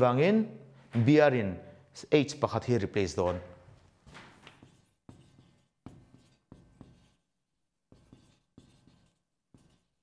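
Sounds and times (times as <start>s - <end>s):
marker pen writing on whiteboard: 3.2s - 10.0s.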